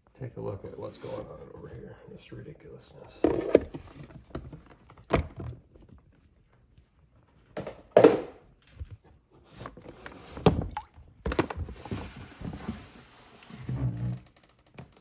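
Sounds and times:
plastic containers knocking: 0:10.4 - 0:12.1.

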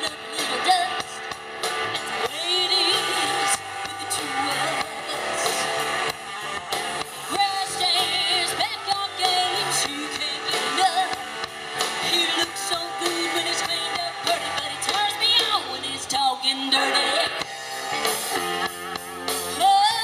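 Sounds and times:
woman singing: 0:00.0 - 0:01.2, 0:01.9 - 0:05.8, 0:07.2 - 0:11.3, 0:12.0 - 0:17.4, 0:19.5 - 0:20.0
drum kit: 0:00.0 - 0:20.0
electric bass: 0:00.0 - 0:20.0
electric guitar: 0:00.0 - 0:20.0.

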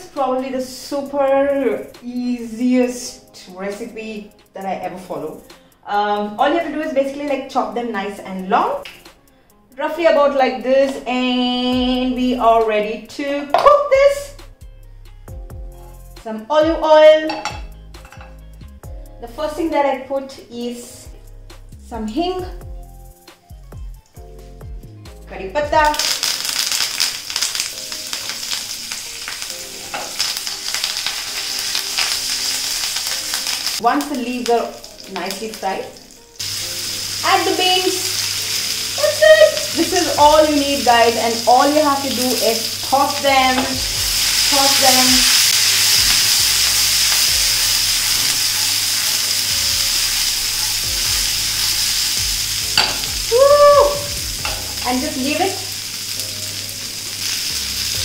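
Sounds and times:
leaves sizzling in hot oil: 0:25.8 - 0:58.0.

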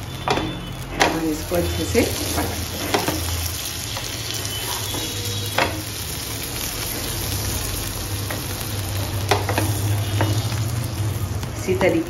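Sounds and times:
butter sizzling in a pan: 0:00.0 - 0:12.0
wooden spatula knocking on pan: 0:04.9 - 0:05.9, 0:09.3 - 0:10.5.

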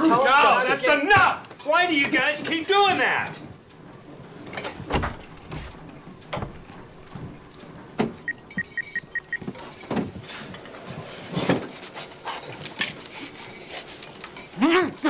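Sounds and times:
treadmill panel beeping: 0:07.1 - 0:11.2.

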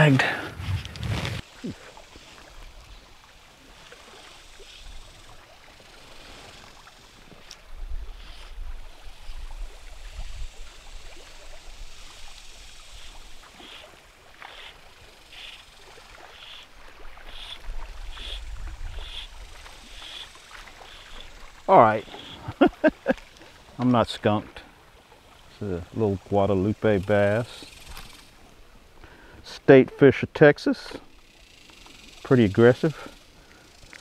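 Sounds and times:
river water lapping around boat: 0:00.0 - 0:34.0
wind buffeting microphone: 0:00.2 - 0:01.4.

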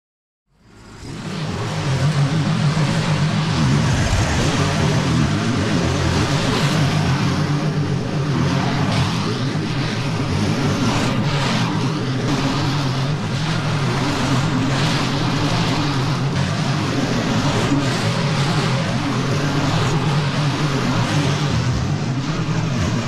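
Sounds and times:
mower engine running: 0:00.8 - 0:06.5.

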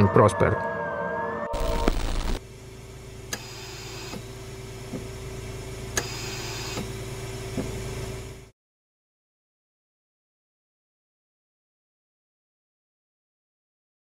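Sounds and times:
low electronic hum: 0:01.5 - 0:08.5.

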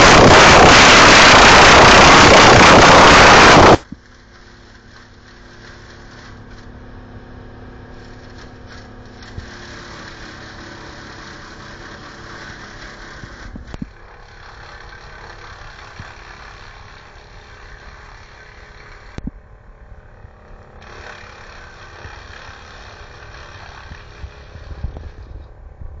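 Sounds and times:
wood chipper running: 0:00.0 - 0:25.9.

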